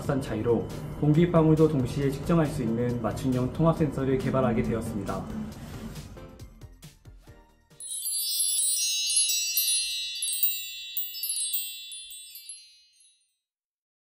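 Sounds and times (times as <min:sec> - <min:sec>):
shimmering bell-like chimes: 0:07.8 - 0:13.3.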